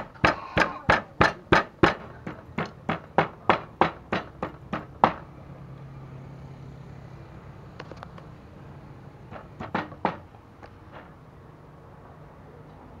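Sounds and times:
pestle pounding in wooden mortar: 0.0 - 5.2, 9.3 - 10.3.

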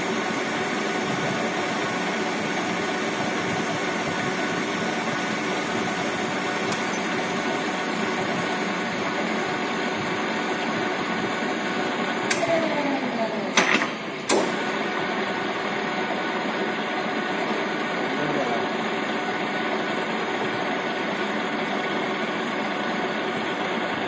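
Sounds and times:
lathe motor humming: 0.0 - 24.0
sharp clicks and clunk: 13.5 - 14.5.

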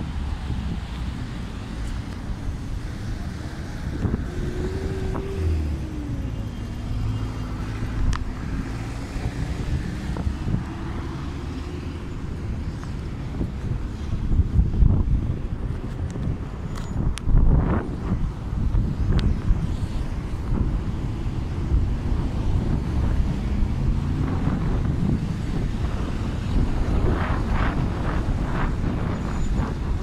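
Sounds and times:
cars driving past: 0.0 - 16.8, 17.4 - 30.0.

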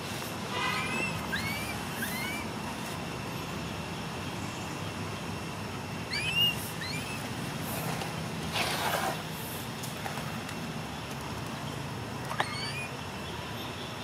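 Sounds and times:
high chirping calls: 0.7 - 2.6, 6.1 - 7.3, 12.3 - 13.0.

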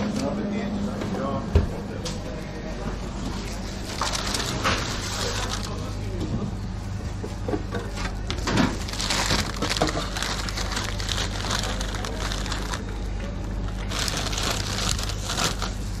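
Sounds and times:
paper crinkling and rustling: 3.3 - 6.0, 8.4 - 12.9, 13.6 - 16.0
chips crackling: 3.9 - 5.9, 8.7 - 12.9, 13.6 - 16.0.

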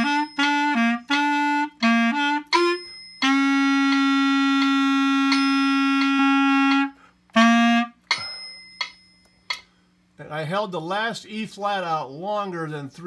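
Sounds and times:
solo clarinet playing: 0.0 - 8.1.

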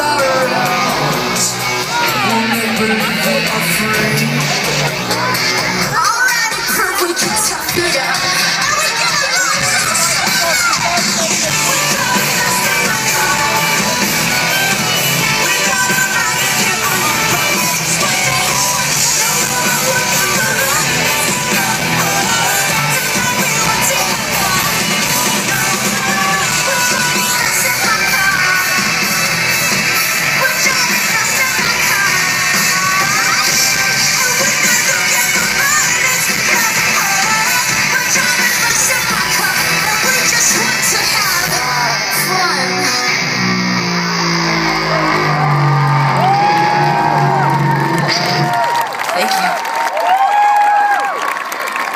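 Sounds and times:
live rock band playing: 0.0 - 49.5
crowd shouting: 0.0 - 51.9
long held guitar notes: 41.5 - 48.4.

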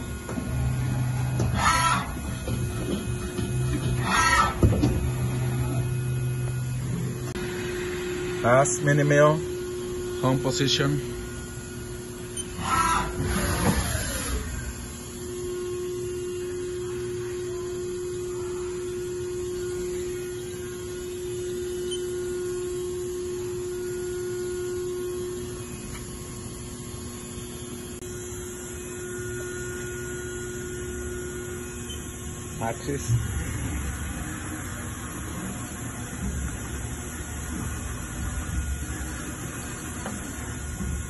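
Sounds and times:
machine hum and whine: 0.0 - 41.0
falling whir: 12.6 - 14.8.

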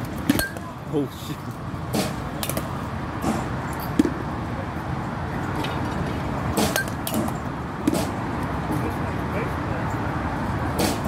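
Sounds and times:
bats striking softballs: 0.0 - 0.8, 1.9 - 4.2, 6.5 - 8.2, 10.7 - 11.0
steady background hum: 0.0 - 11.0.

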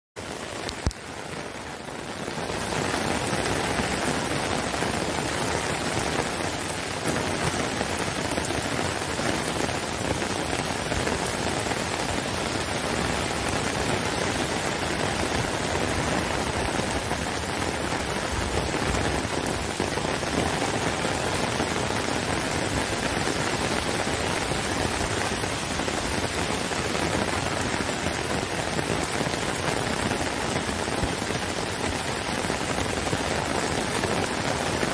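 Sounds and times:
heavy rain falling: 0.2 - 34.9.

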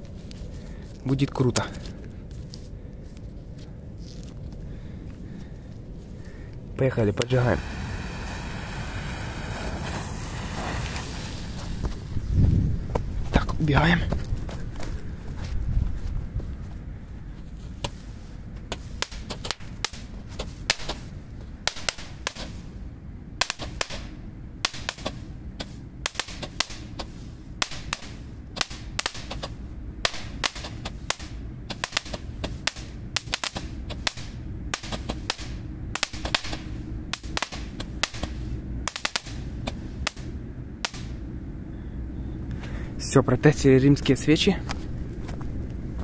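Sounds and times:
roman candles popping: 7.2 - 12.1.

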